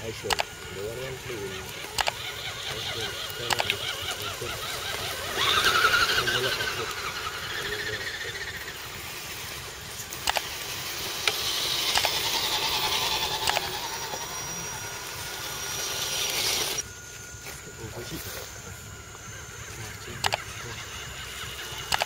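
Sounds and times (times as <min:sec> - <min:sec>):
small electric motor whining: 0:00.0 - 0:22.0
sharp clicks: 0:00.2 - 0:00.7, 0:01.6 - 0:06.1, 0:09.5 - 0:14.2, 0:20.2 - 0:20.5.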